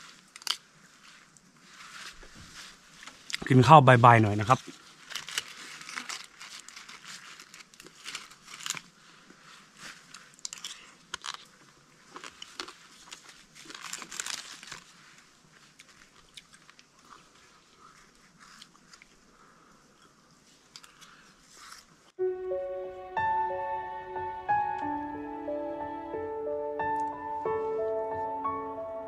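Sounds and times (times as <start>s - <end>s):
banana leaves crinkling and rustling: 0.0s - 19.6s
chewing: 15.7s - 19.2s.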